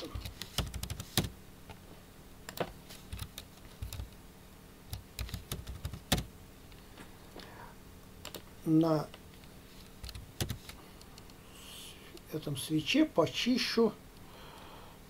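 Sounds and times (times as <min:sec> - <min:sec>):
typing on a computer keyboard: 0:00.2 - 0:01.3, 0:03.1 - 0:04.1, 0:04.9 - 0:06.3, 0:10.0 - 0:10.8.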